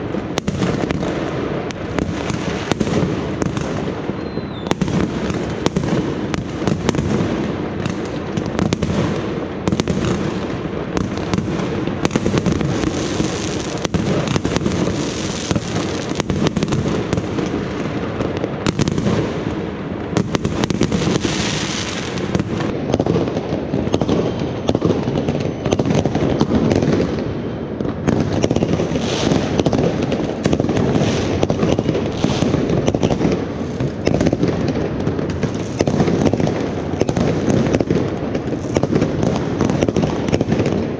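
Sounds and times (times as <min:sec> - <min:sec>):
fireworks barrage bangs and crackles: 0:00.0 - 0:40.9.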